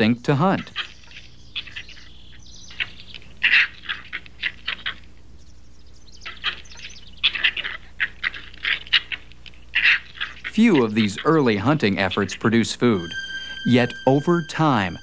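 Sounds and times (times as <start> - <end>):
faint steady hum: 0.0 - 15.0
fox pups squeaking and chirping: 0.6 - 11.4.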